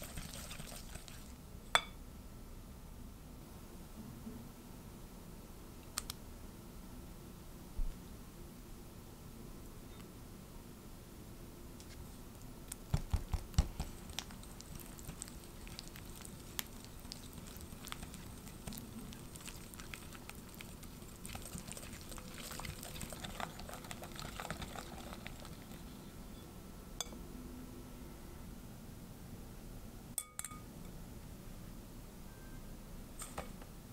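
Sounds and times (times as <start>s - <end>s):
whisk beating batter in glass bowl: 0.0s - 1.4s, 13.1s - 25.9s.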